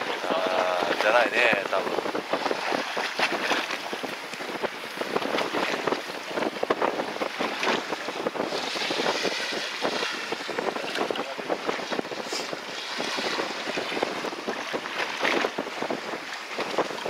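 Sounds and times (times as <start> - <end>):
water splashing against boat: 0.0 - 17.0
wind buffeting microphone: 0.0 - 17.0.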